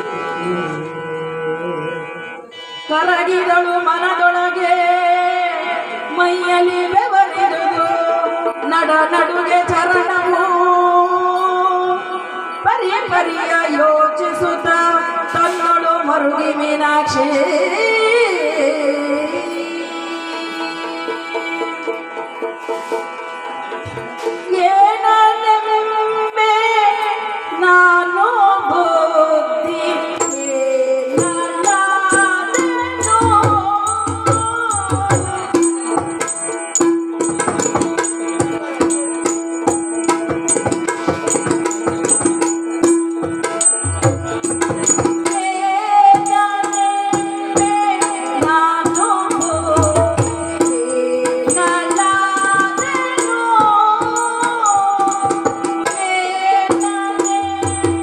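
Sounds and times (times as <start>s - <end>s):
person singing: 0.0s - 22.0s, 24.2s - 58.0s
hand drum strokes: 22.4s - 24.7s, 30.2s - 58.0s.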